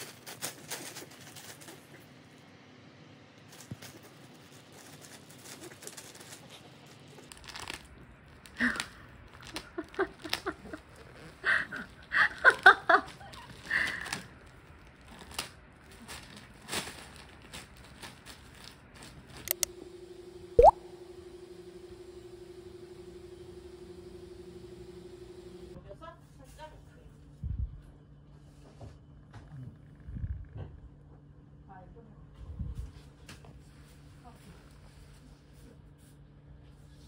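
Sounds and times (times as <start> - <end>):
dog chewing plastic bag: 3.7 - 19.4
plastic crinkling: 7.2 - 10.6, 11.8 - 19.4.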